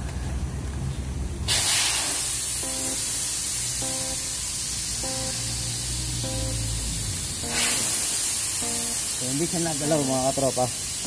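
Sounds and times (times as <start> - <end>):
loud steady hiss: 1.3 - 11.0
background music repeating chord: 2.6 - 9.4.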